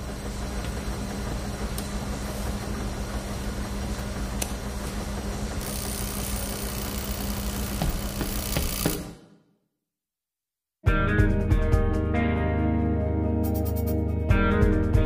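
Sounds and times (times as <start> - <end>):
washing machines and dryers humming: 0.0 - 9.5.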